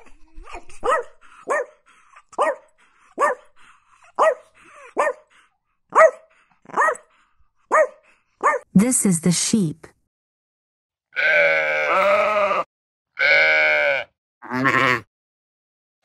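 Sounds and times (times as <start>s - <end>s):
dog barking: 0.8s - 3.5s, 4.1s - 7.1s, 7.7s - 8.7s.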